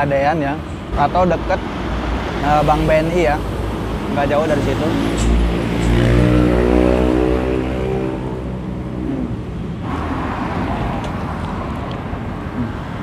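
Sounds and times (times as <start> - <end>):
vehicle engine hum: 0.0 - 13.0
car passing by: 1.7 - 8.7.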